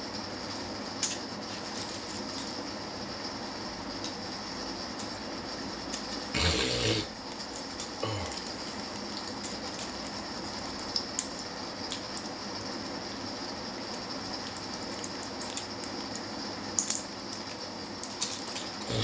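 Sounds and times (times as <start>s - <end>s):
steady hiss: 0.0s - 19.0s
blister pack crinkling and clicking: 16.8s - 19.0s.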